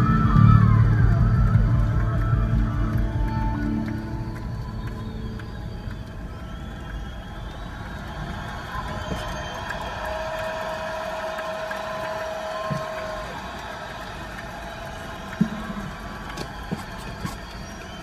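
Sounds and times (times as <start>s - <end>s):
tyres rolling on snow: 14.6s - 18.0s.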